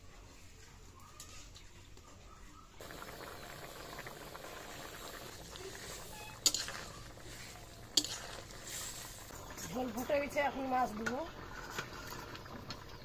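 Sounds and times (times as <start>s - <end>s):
curry boiling and bubbling: 2.8s - 13.0s.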